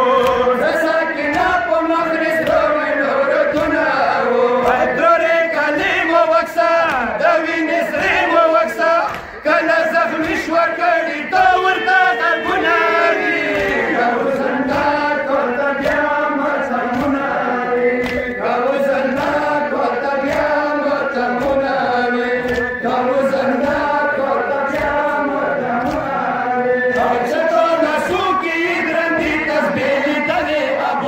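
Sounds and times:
crowd of men chanting: 0.0s - 31.0s
chest-beating slaps: 9.0s - 9.4s, 10.2s - 10.5s, 13.5s - 13.9s, 16.9s - 18.4s, 19.1s - 19.4s, 22.4s - 22.8s.

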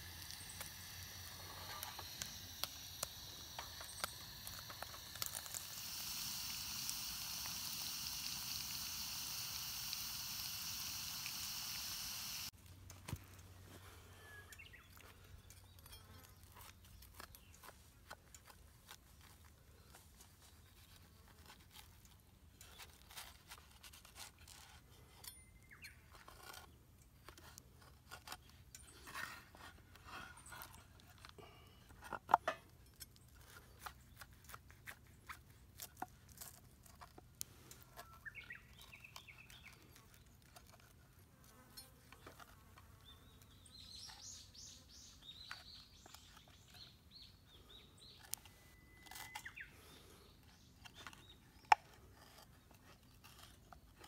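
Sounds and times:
sandwich maker sizzling hiss: 0.0s - 12.5s.

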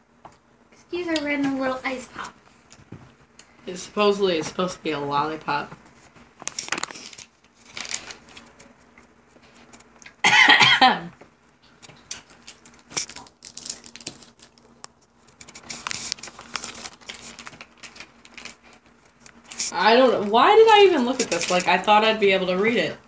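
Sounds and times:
plastic packaging crinkling: 6.4s - 8.8s, 11.9s - 19.8s, 20.6s - 21.9s.

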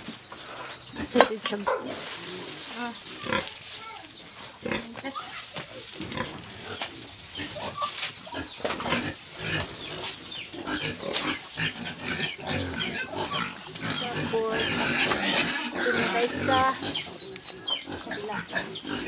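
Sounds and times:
pig grunting: 4.6s - 19.0s.

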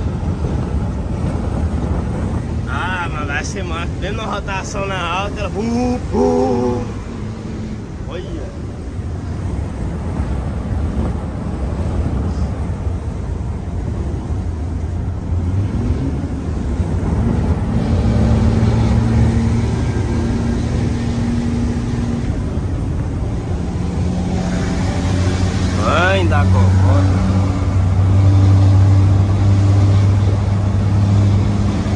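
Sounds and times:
truck diesel engine at high revs: 5.1s - 12.5s, 14.2s - 31.9s.

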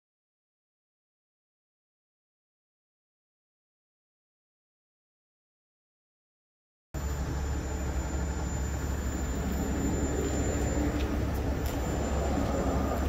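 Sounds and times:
diesel engine idling: 7.0s - 13.0s
thin high whine: 7.0s - 13.0s.

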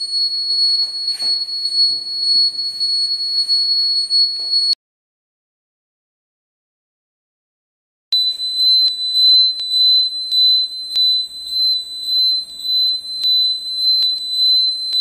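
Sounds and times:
high-pitched alarm buzzer: 0.0s - 4.8s, 8.2s - 15.0s.

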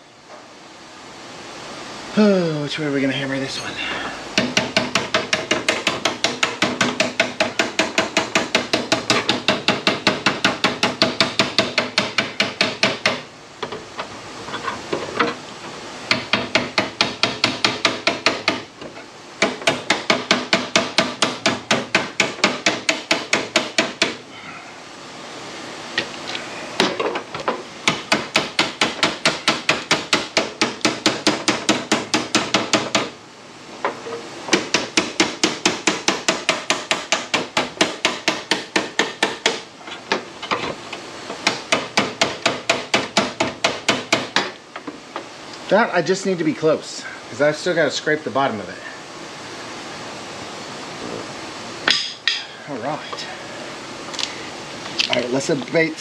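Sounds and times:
hammer beating sheet steel: 4.4s - 13.2s, 16.1s - 18.7s, 19.4s - 24.2s, 27.8s - 33.2s, 34.5s - 39.6s, 41.4s - 44.6s.

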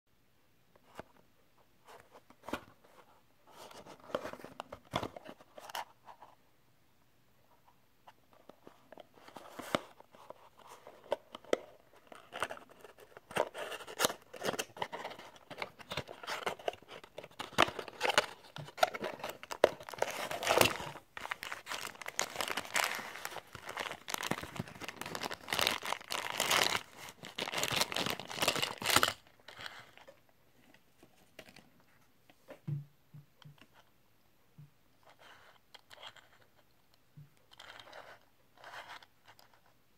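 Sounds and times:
cardboard rustling and scraping: 12.0s - 28.9s.

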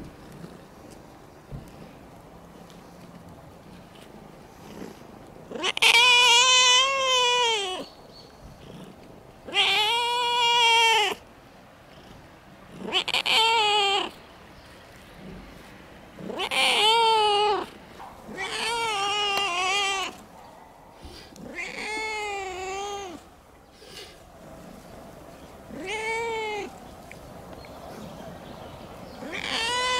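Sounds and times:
cat yowling meows: 5.5s - 7.9s, 9.5s - 11.2s, 12.9s - 14.1s, 16.3s - 17.7s, 18.3s - 20.2s, 21.4s - 23.3s, 25.7s - 26.8s, 29.2s - 29.9s.

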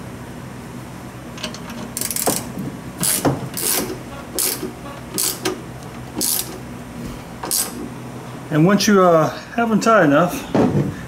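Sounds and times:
ratchet wrench clicking: 2.0s - 5.6s, 6.2s - 6.6s, 7.5s - 7.8s.

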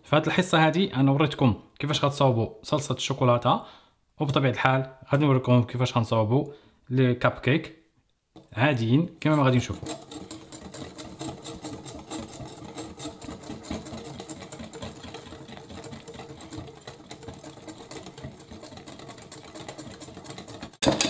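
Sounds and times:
electric hand mixer whisking: 9.3s - 21.0s.

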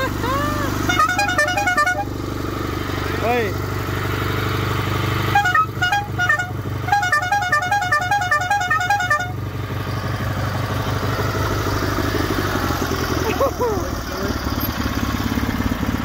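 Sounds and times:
tractor engine running: 0.0s - 16.0s
air horn toots: 0.6s - 2.2s, 5.3s - 9.4s.

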